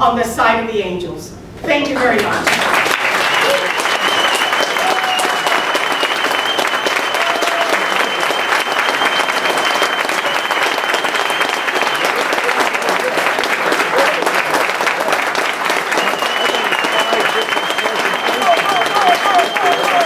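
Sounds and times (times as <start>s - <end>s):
audience applauding: 2.0s - 20.0s.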